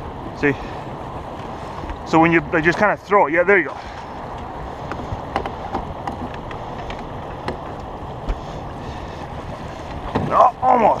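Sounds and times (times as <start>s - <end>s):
river water around boat: 0.0s - 11.0s
light knocks and clicks: 4.3s - 8.4s.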